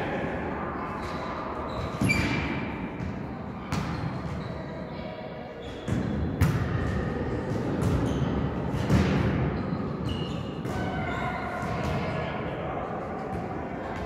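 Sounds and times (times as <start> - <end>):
volleyball thumping on hall floor: 5.8 - 12.2.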